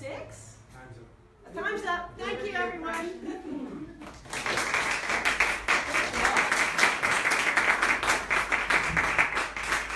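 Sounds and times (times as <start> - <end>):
audience applause: 4.2 - 9.9.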